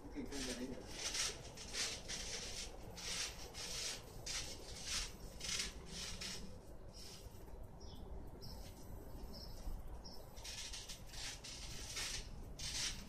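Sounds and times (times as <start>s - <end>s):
trampoline springs rasping: 10.4s - 13.0s.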